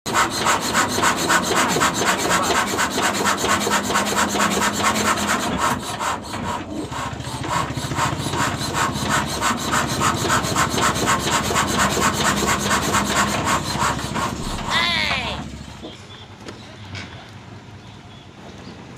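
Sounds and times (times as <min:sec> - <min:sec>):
diesel engine rhythmic beat: 0:06.9 - 0:16.3.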